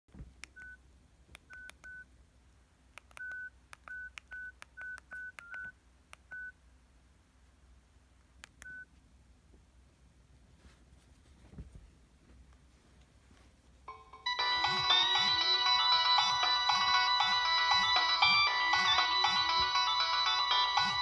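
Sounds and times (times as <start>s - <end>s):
keypad beeps: 1.5s - 2.0s, 3.1s - 5.7s, 8.6s - 8.9s.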